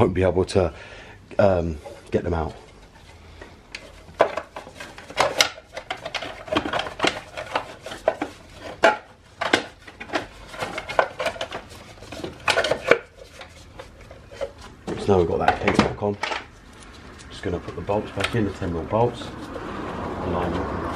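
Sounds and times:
plastic case clicking and rattling: 4.1s - 13.5s.

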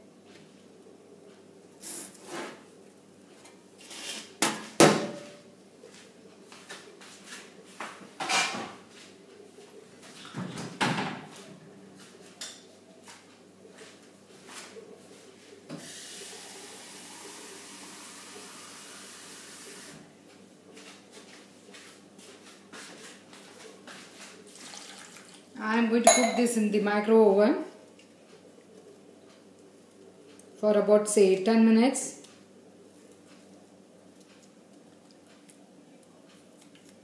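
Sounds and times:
kitchen utensils knocking and clattering: 26.1s - 26.6s.

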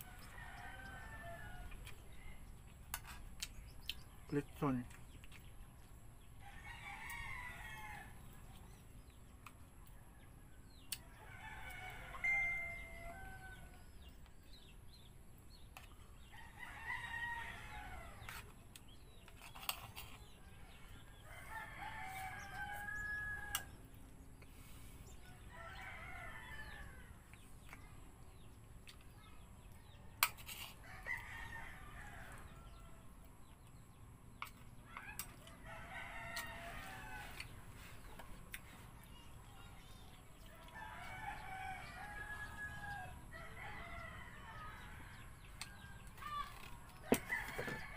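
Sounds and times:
rooster crowing: 11.2s - 13.8s, 21.2s - 23.7s, 35.5s - 37.4s, 40.7s - 46.1s, 47.1s - 47.9s.

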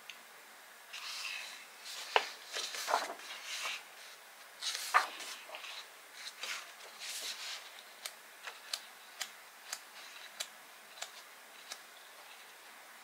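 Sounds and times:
soft rustle: 0.9s - 8.8s.

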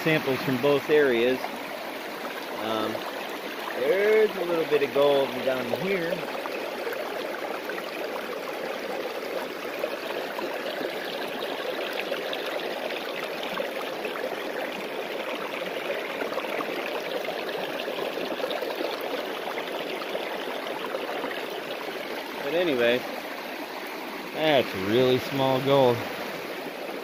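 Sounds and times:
water running through sluice box: 0.0s - 27.0s.

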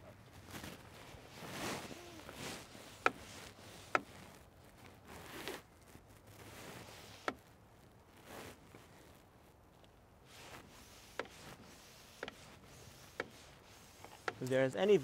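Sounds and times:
hand air pump whooshes: 0.6s - 4.3s, 10.3s - 14.5s.

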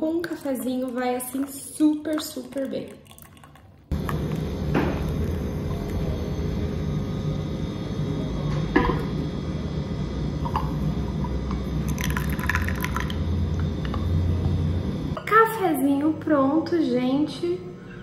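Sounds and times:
water pouring onto coffee grounds: 11.9s - 13.2s.

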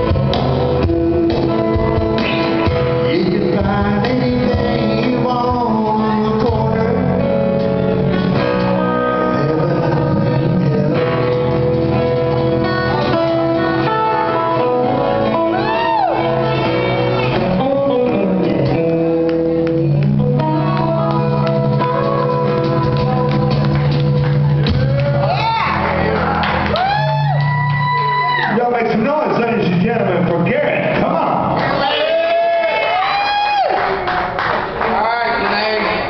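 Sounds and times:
person singing: 0.0s - 11.8s, 12.4s - 24.2s
electric bass: 0.0s - 32.2s.

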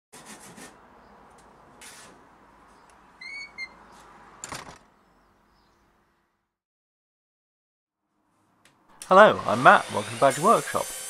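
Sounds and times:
hand saw rasping through wood: 0.2s - 0.8s, 9.2s - 11.0s
high squeaking whistle: 3.2s - 3.8s.

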